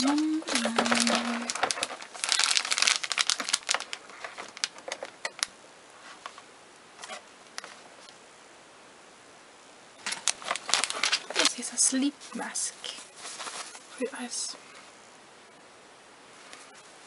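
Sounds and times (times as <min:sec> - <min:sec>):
plastic bag crinkling: 0:00.0 - 0:06.4, 0:10.0 - 0:14.0.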